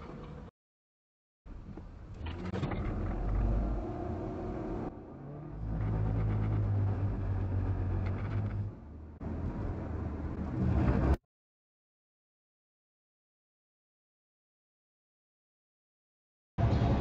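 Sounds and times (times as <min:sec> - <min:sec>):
road noise inside car: 0:01.6 - 0:11.2
car engine: 0:02.2 - 0:11.2.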